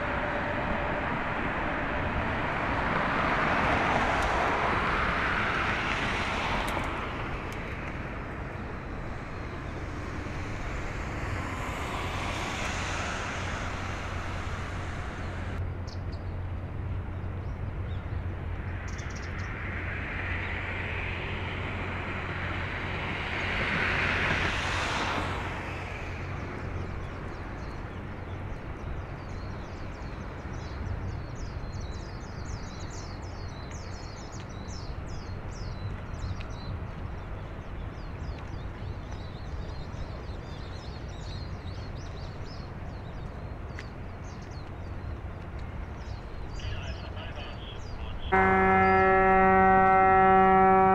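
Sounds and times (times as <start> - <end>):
vehicle passing: 0.0 - 15.8, 16.6 - 28.9, 45.2 - 50.9
ship engine drone: 0.0 - 30.9, 44.9 - 50.9
small birds chirping: 26.3 - 49.0.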